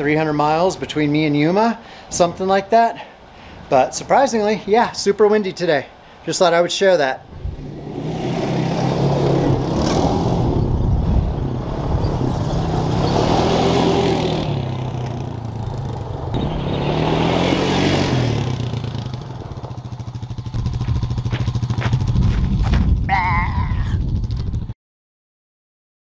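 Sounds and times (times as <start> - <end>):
atv engine driving past: 7.3 - 22.7.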